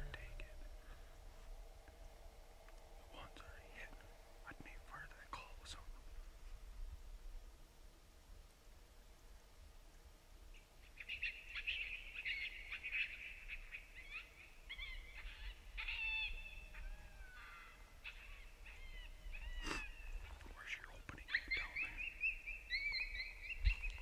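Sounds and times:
coyotes yipping and howling: 0:10.8 - 0:24.0.

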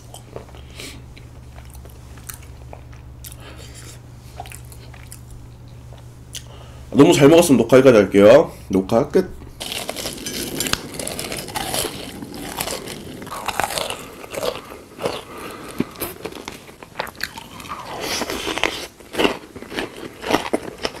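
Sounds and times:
crunchy bites and chewing: 0:09.6 - 0:21.0.

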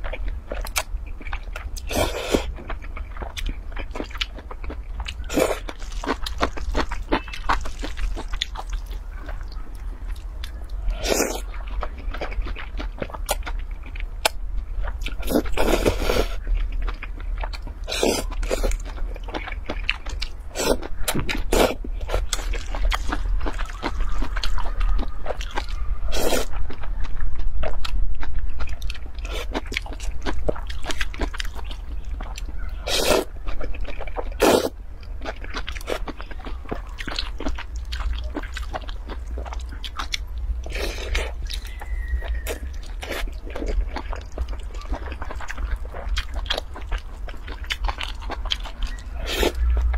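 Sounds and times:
low steady hum: 0:00.0 - 0:49.9
wet chewing: 0:00.0 - 0:49.9
person slurping noodles: 0:34.4 - 0:34.7.

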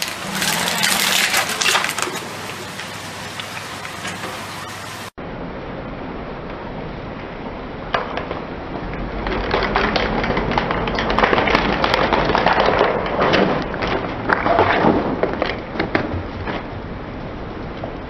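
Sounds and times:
plastic cracking and snapping: 0:00.0 - 0:02.2, 0:09.3 - 0:16.6.

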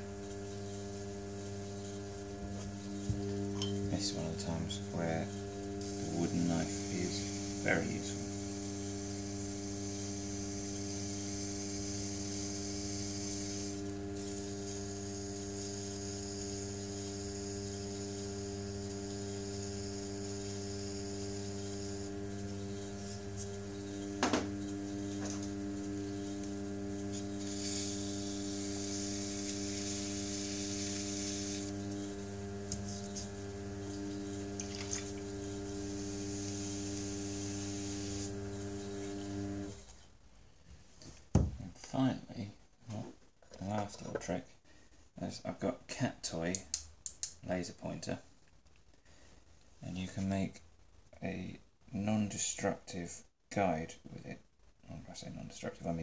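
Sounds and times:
potter's wheel humming: 0:00.0 - 0:39.9.

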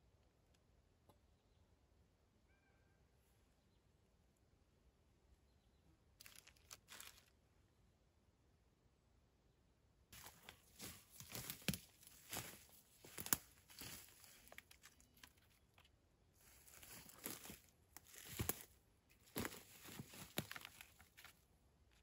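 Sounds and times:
sticks crunching and snapping: 0:06.2 - 0:07.3, 0:10.2 - 0:21.4.

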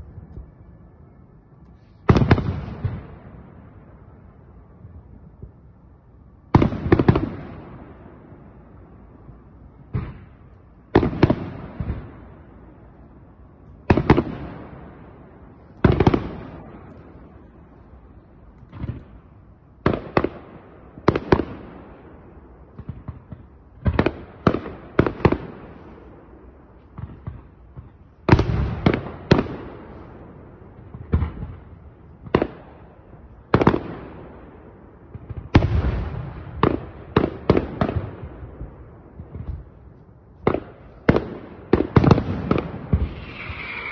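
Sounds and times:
fireworks bursting: 0:01.9 - 0:03.3, 0:13.8 - 0:26.1, 0:35.0 - 0:43.9.

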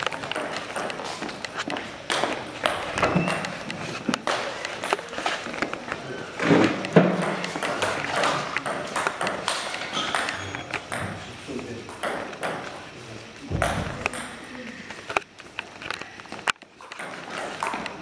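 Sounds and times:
table tennis ball bouncing: 0:00.0 - 0:05.8, 0:06.7 - 0:11.3, 0:11.9 - 0:12.8, 0:13.5 - 0:14.5, 0:16.8 - 0:18.0.

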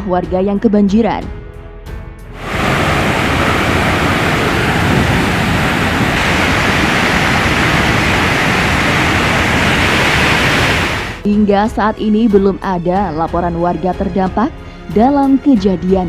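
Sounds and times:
flood water rushing: 0:02.4 - 0:11.2.

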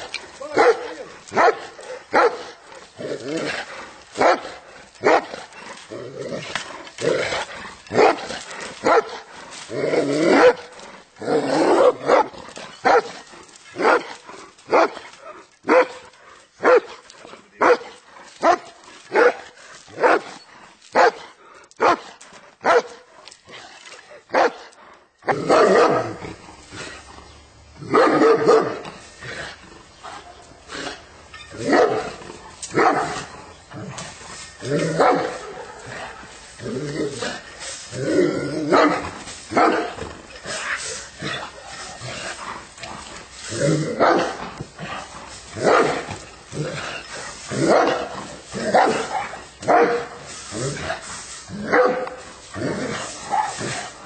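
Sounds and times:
dog barking: 0:00.6 - 0:02.5, 0:15.7 - 0:16.0, 0:16.6 - 0:16.9, 0:22.6 - 0:23.0, 0:48.8 - 0:50.1, 0:51.7 - 0:52.1.

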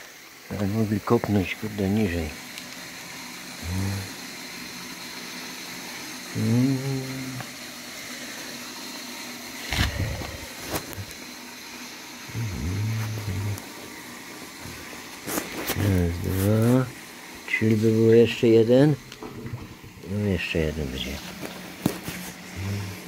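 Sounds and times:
steady hiss: 0:00.0 - 0:23.0
man murmuring: 0:03.6 - 0:04.2, 0:06.3 - 0:07.5, 0:12.3 - 0:13.7, 0:22.5 - 0:23.0.

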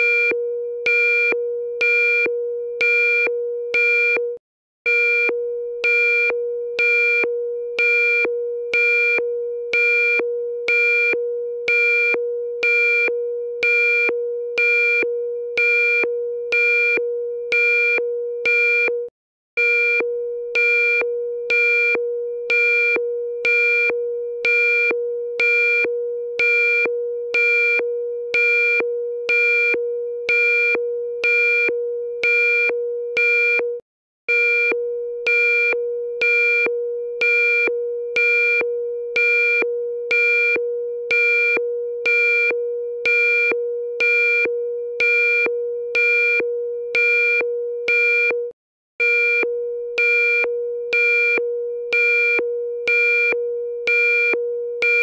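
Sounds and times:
steady low electronic tone: 0:04.9 - 0:18.4, 0:19.9 - 0:32.2, 0:34.7 - 0:46.9.

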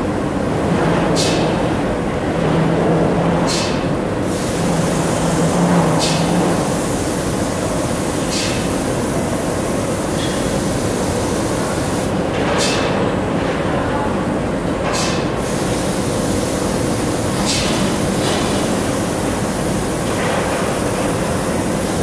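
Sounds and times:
extraction and factory machinery noise: 0:00.0 - 0:22.0
spray gun hissing: 0:04.2 - 0:12.1, 0:15.4 - 0:20.0.

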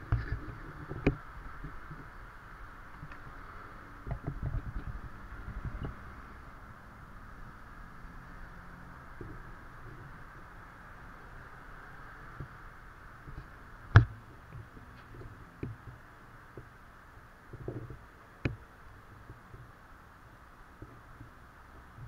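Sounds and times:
faint steady hiss: 0:00.0 - 0:22.0
sharp knocks or clicks: 0:13.9 - 0:14.2.

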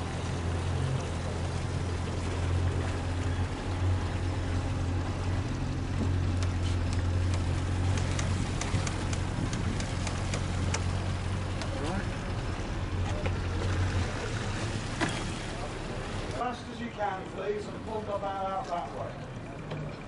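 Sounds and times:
boat engine humming: 0:00.0 - 0:20.0
light clicks and taps: 0:06.0 - 0:10.9, 0:11.5 - 0:11.9.

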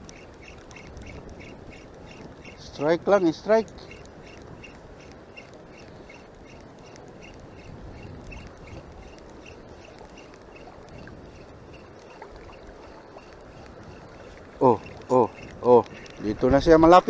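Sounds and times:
choppy sea water washing: 0:00.0 - 0:17.0
faint regular ticking: 0:00.0 - 0:17.0.

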